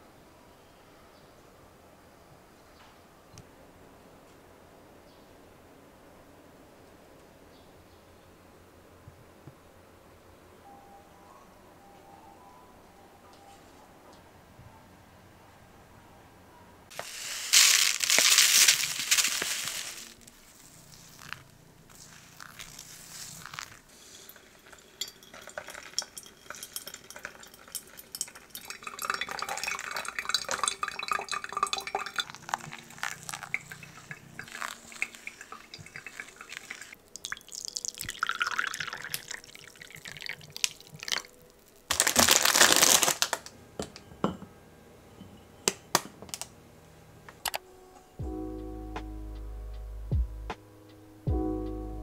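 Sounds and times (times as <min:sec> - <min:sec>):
water pouring onto coffee: 0:16.9 - 0:41.8
coffee dripping: 0:16.9 - 0:42.9
cup and saucer clinking: 0:23.5 - 0:41.2, 0:43.8 - 0:45.9.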